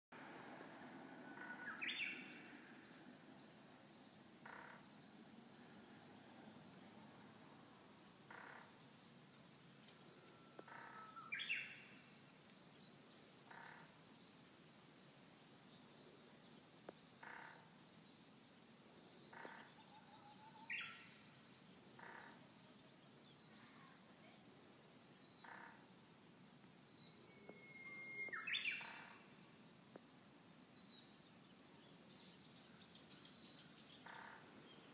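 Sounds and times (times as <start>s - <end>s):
bird whistling song: 27.0s - 28.9s
short bird calls: 27.3s - 29.2s.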